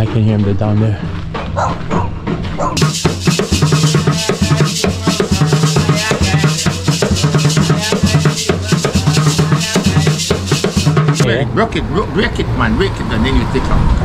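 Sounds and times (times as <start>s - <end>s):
hand drums in fast rhythm: 2.8s - 11.3s.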